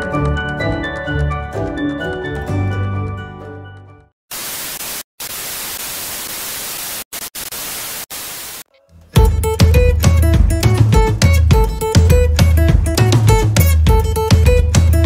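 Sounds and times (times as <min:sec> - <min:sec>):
background music: 0:00.0 - 0:04.1, 0:08.7 - 0:15.0
television static hiss: 0:04.3 - 0:08.7.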